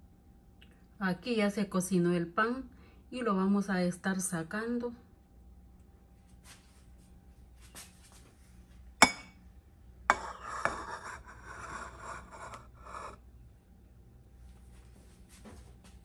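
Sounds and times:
cutting board scraping on mat: 10.2 - 13.2.

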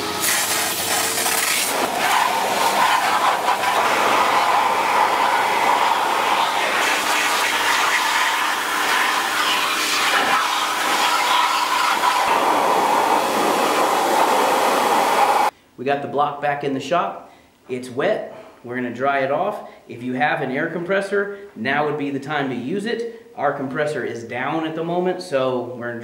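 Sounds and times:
pressure washer spraying metal: 0.0 - 15.5.

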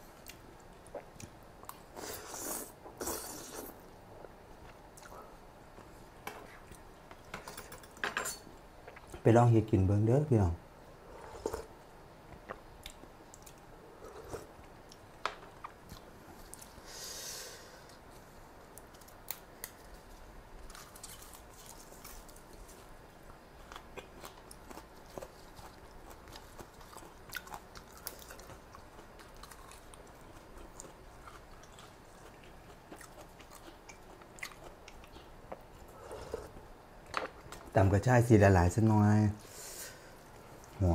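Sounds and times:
person chewing food: 0.2 - 7.3, 20.6 - 37.7.

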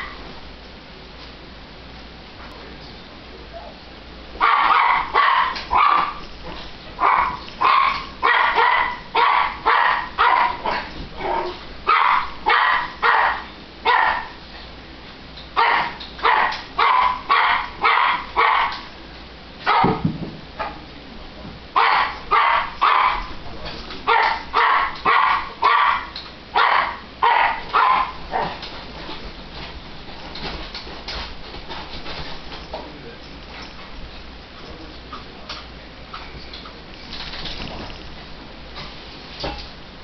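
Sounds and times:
small dog barking: 4.4 - 6.2, 7.0 - 14.4, 15.6 - 18.9, 19.6 - 20.0, 21.8 - 23.3, 24.0 - 28.6.

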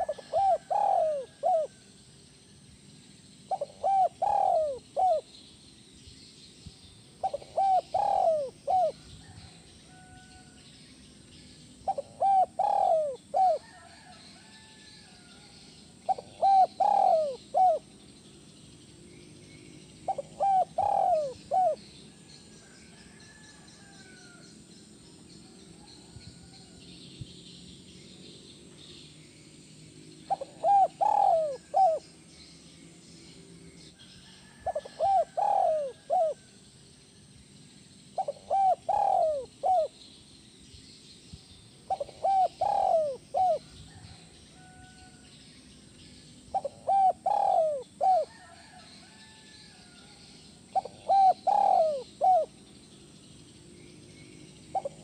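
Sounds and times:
dove cooing: 0.0 - 1.8, 3.5 - 5.3, 7.2 - 10.4, 11.8 - 14.6, 16.1 - 18.0, 20.1 - 21.9, 30.3 - 32.1, 34.5 - 36.5, 38.2 - 40.0, 41.9 - 44.8, 46.5 - 48.8, 50.7 - 52.6, 54.7 - 55.0.

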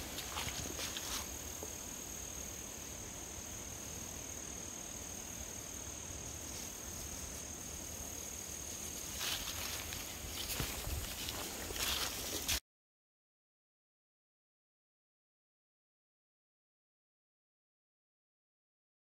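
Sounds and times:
footsteps in dry leaves: 0.0 - 1.4, 8.9 - 12.6
insects trilling: 0.0 - 12.5.

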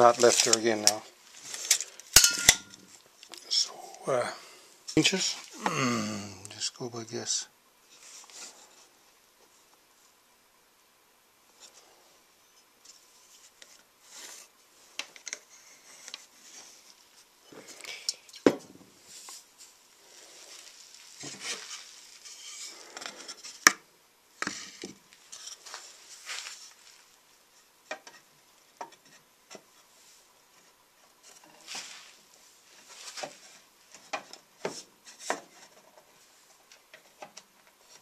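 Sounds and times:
wooden boards knocking: 18.4 - 18.8.

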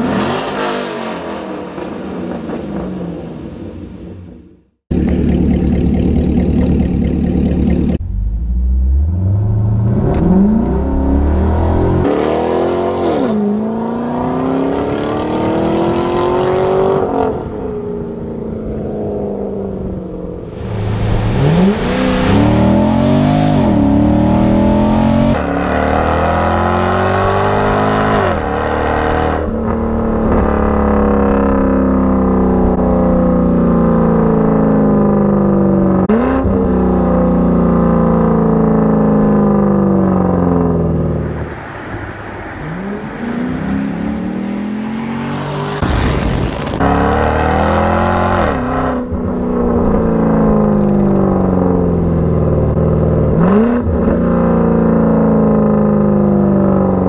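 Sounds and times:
car engine accelerating hard: 19.3 - 41.2.

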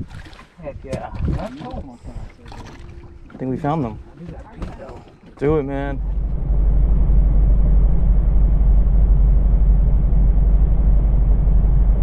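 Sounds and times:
boat motor droning: 1.1 - 12.0.

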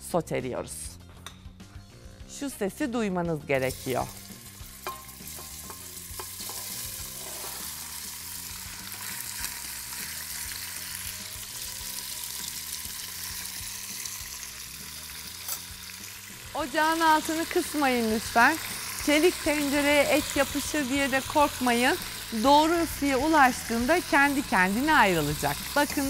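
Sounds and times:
meat sizzling in a pot: 3.6 - 26.0
tongs knocking: 4.8 - 6.7.

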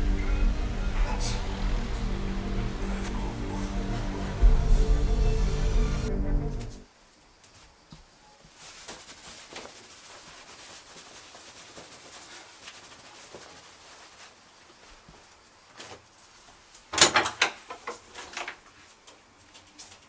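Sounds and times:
towel rubbing hair: 8.5 - 16.7.

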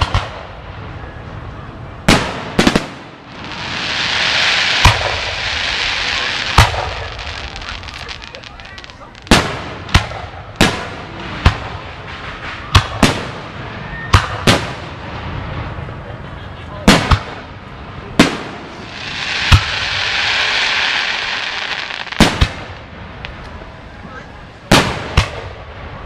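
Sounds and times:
fireworks bursting: 0.0 - 16.0, 16.8 - 26.0
steady hiss: 2.8 - 10.1, 17.6 - 24.7.

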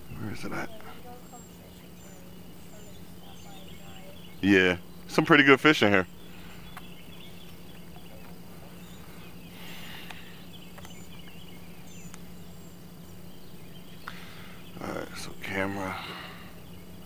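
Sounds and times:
small birds chirping: 0.0 - 17.0
steady low hum: 0.0 - 17.0
faint clicks: 10.0 - 11.4.

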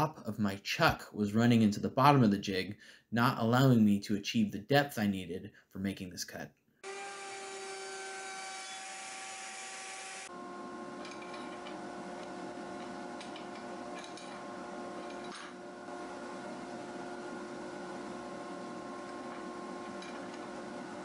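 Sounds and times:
power tool motor whining: 6.8 - 13.7.

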